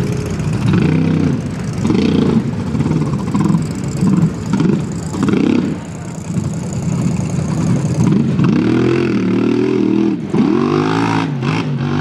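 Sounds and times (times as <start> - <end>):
tires churning through mud: 0.0 - 12.0
truck engine revving: 0.0 - 12.0.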